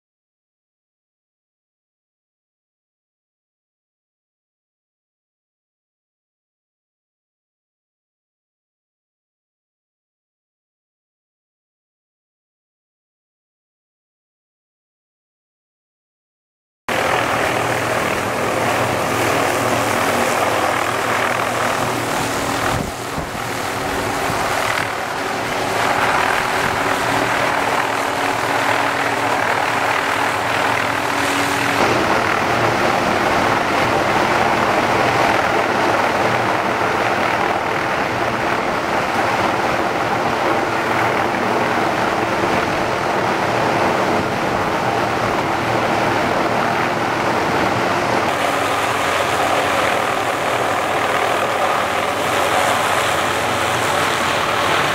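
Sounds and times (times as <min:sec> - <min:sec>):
helicopter rotor and engine: 0:16.9 - 0:54.9.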